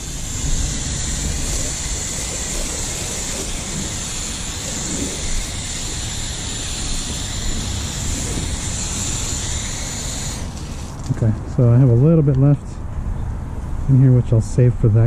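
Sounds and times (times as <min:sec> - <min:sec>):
foam spray hissing: 0:00.0 - 0:11.2.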